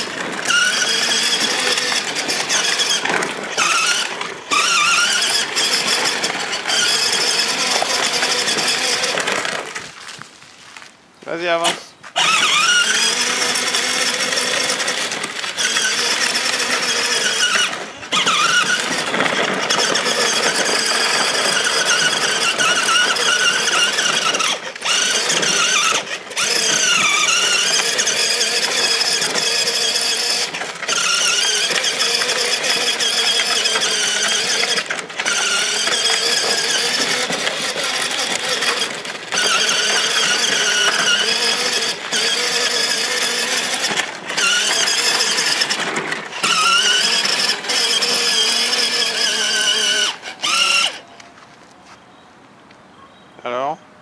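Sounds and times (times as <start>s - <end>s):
electric motors whining: 0.0s - 10.2s, 11.3s - 51.4s.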